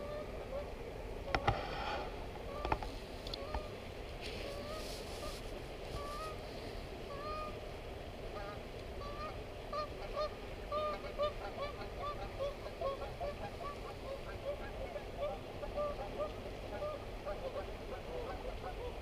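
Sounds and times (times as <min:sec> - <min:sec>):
geese honking: 0:00.0 - 0:01.5, 0:07.1 - 0:07.6, 0:08.3 - 0:19.0.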